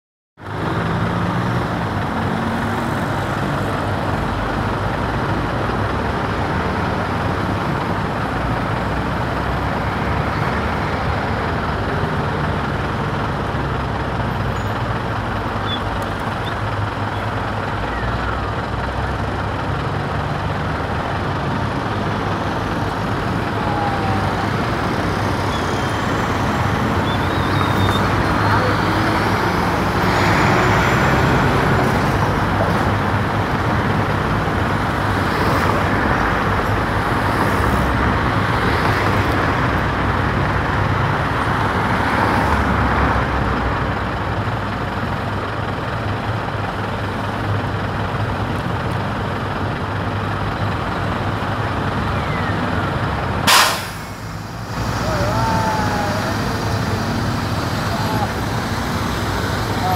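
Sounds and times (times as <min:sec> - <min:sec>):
road traffic engines humming: 0:00.4 - 0:59.9.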